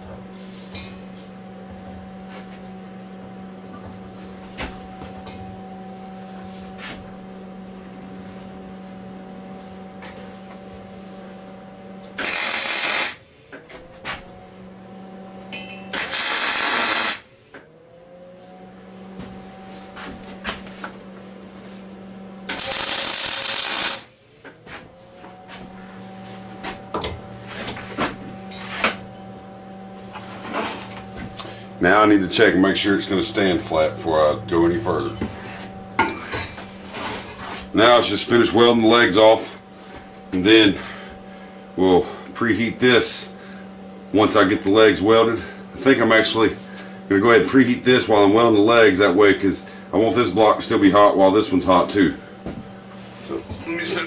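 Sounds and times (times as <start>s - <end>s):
steady hum: 0.0s - 54.0s
arc welding bursts: 12.2s - 13.2s, 16.0s - 17.3s, 22.5s - 24.1s.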